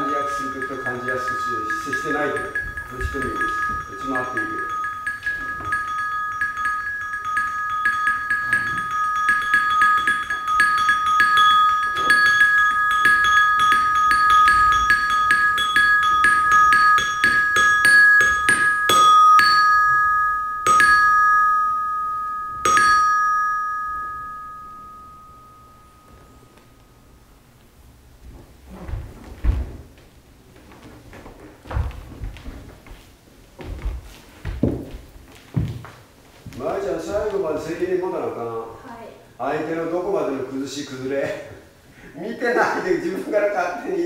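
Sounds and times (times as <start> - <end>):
high metal chime struck: 0.0 - 27.4.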